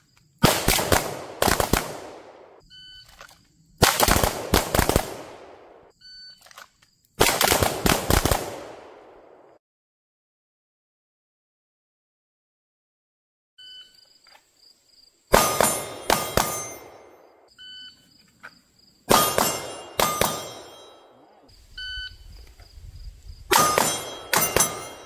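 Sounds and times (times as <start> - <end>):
pistol shots: 0.4 - 2.6, 3.8 - 5.9, 7.2 - 9.5, 15.3 - 17.4, 19.1 - 21.2, 23.5 - 25.0
steel targets ringing: 15.3 - 17.2, 19.1 - 21.5, 23.5 - 25.0.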